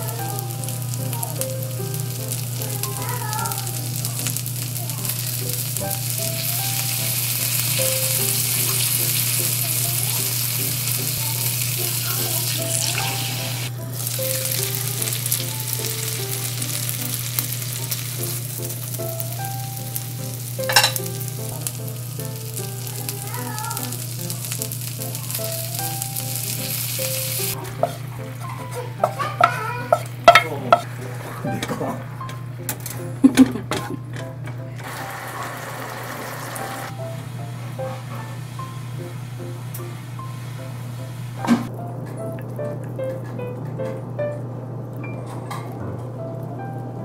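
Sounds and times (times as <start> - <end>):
patties sizzling in a frying pan: 0.0 - 31.5, 34.8 - 37.6.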